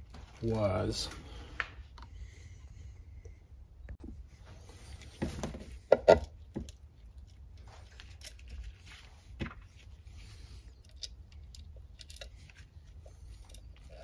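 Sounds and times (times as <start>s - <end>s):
small metal parts clicking: 10.7s - 14.0s.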